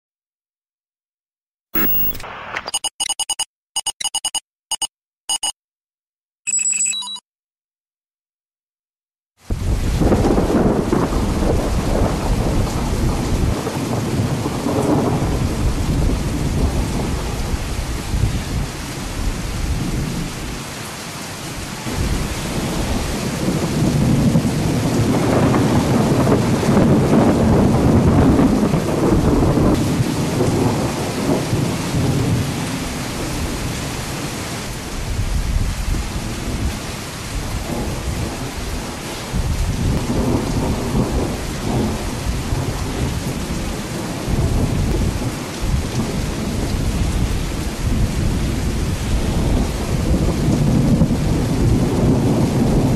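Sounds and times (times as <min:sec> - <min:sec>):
thunder rumbling: 0:09.5 - 0:20.2, 0:21.9 - 0:33.6, 0:37.4 - 0:52.9.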